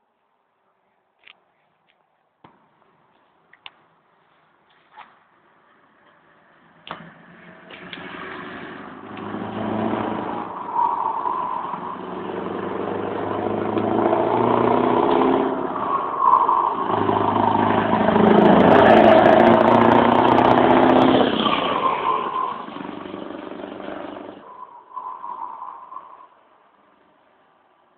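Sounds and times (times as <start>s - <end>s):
diesel truck accelerating past: 6.6s - 27.5s.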